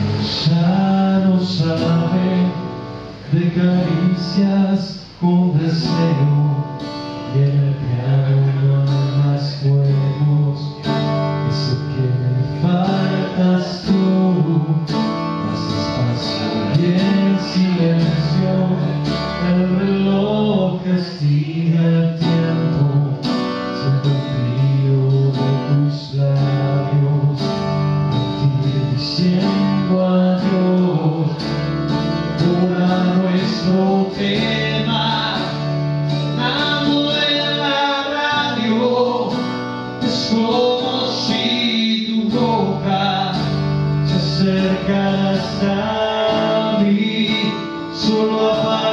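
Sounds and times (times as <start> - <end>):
man singing: 0.0 - 31.6, 32.2 - 48.9
acoustic guitar: 0.0 - 48.9.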